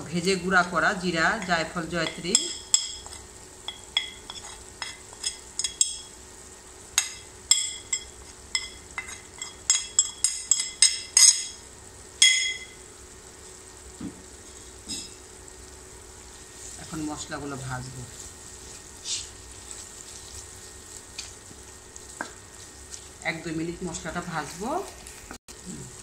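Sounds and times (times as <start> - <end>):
hot oil sizzling: 0.0 - 26.0
china plate clinking: 12.2 - 12.8.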